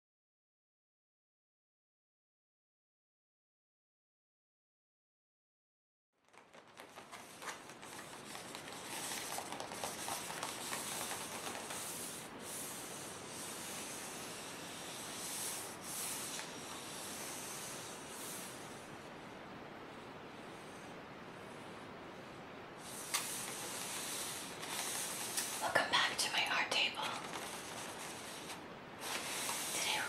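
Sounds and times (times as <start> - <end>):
fingertips scratching paper: 6.3 - 18.6, 22.9 - 26.2, 26.8 - 30.0.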